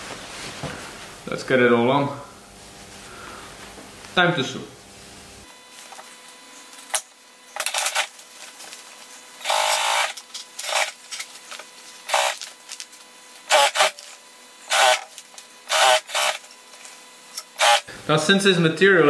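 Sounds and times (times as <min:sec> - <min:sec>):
faint steady hum: 0:00.0 - 0:19.0
industrial sewing machine stitching: 0:15.7 - 0:16.5, 0:17.6 - 0:17.9.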